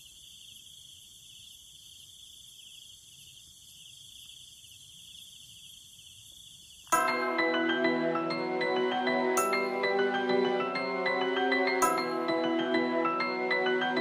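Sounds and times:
crickets trilling: 0.0s - 7.0s
insects hissing: 0.0s - 7.0s.

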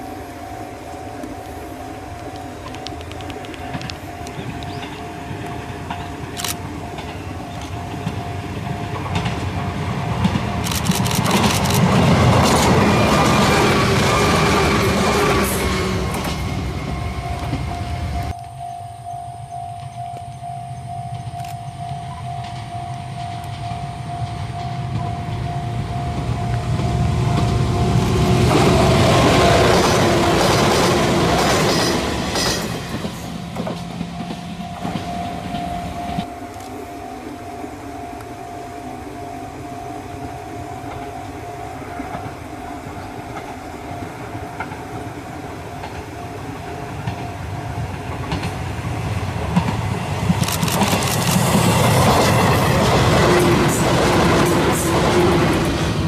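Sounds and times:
electric trains passing: 0.0s - 56.0s
wheels clacking over rail joints: 2.6s - 18.2s, 22.4s - 36.3s, 45.7s - 56.0s.

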